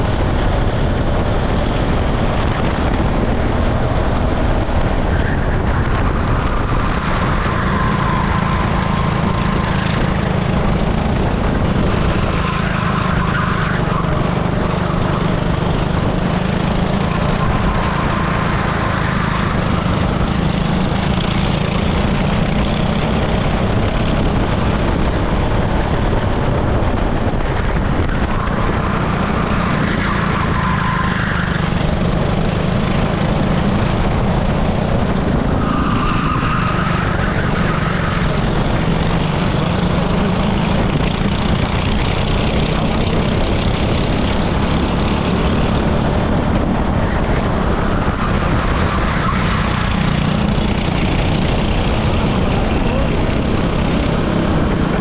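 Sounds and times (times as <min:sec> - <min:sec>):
kart engine running hard: 0:00.0 - 0:55.0.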